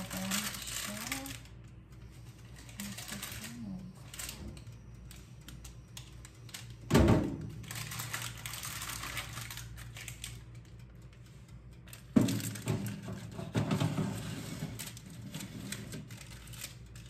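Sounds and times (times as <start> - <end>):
low steady hum: 0.0 - 17.0
metal tray clunking on oven: 12.2 - 14.4.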